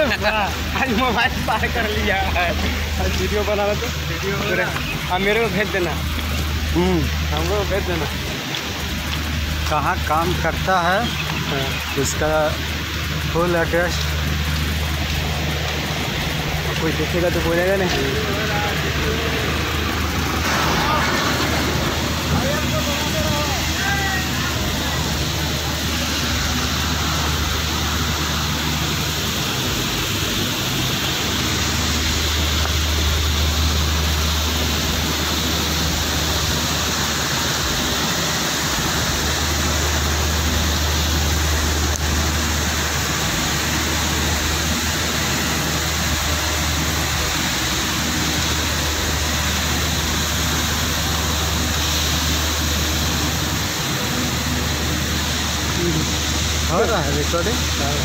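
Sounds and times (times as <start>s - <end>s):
industrial equipment rushing noise: 0.0s - 58.0s
low hum: 12.5s - 58.0s.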